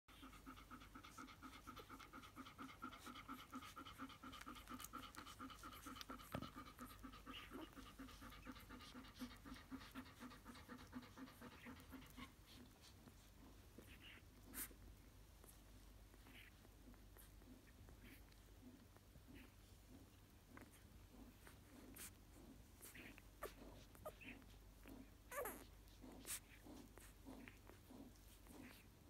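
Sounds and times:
dog panting: 0.1 - 29.0
puppies suckling clicks: 0.2 - 29.0.

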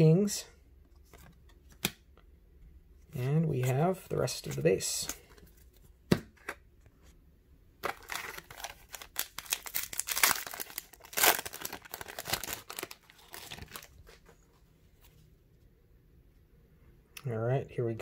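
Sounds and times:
foil wrapper crinkling and tearing: 7.8 - 14.1.

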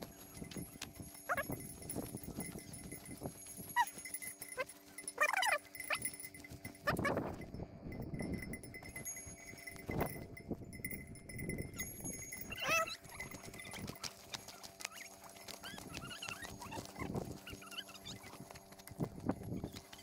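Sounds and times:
faint ringing: 0.0 - 15.8.

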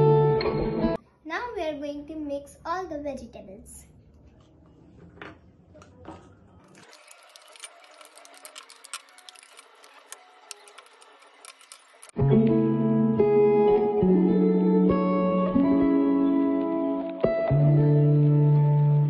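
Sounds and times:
acoustic guitar music: 0.0 - 1.0, 12.1 - 19.0
kernels rattling into glass bowl: 6.7 - 12.1.

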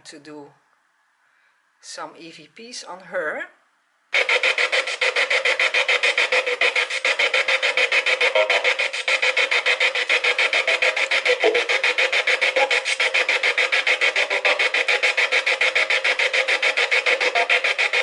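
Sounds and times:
radio static bursts: 4.2 - 18.0.

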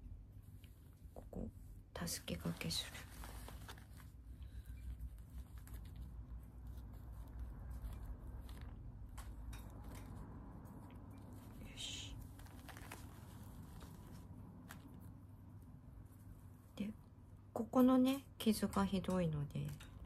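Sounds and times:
bandage crinkling: 2.1 - 16.7.

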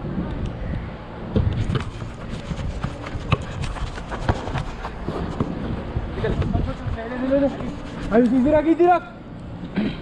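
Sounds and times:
running footsteps on turf: 1.7 - 8.6.

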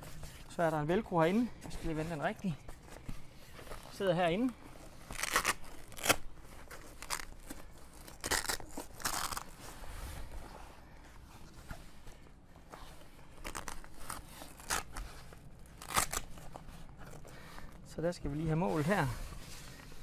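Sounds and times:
tent fabric rustling: 0.0 - 20.0
velcro rasping: 1.9 - 9.8, 12.6 - 17.9.

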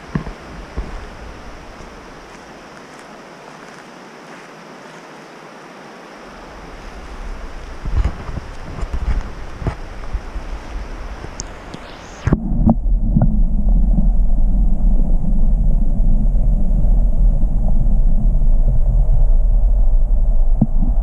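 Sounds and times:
creek water flowing: 0.0 - 12.3
wind: 0.0 - 21.0
muffled underwater rumble: 6.4 - 21.0.

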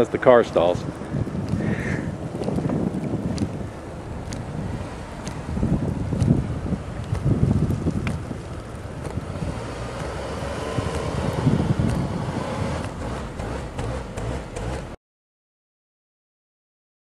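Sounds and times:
wind buffeting microphone: 0.0 - 15.0
car engine running: 3.6 - 15.0
tyres spinning in snow: 3.6 - 15.0.

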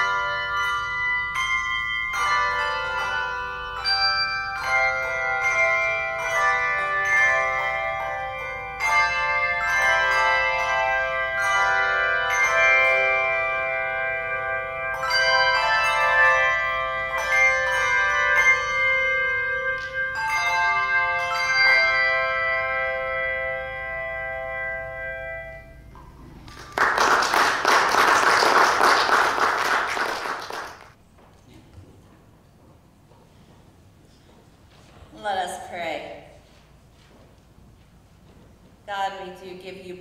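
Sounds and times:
handbell choir ringing a hymn: 0.0 - 30.8
congregation applauding: 26.0 - 31.0.

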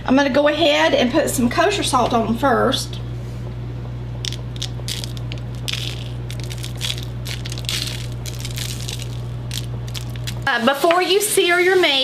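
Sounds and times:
steady low hum: 0.0 - 12.0
salt grains ticking: 4.2 - 11.2.

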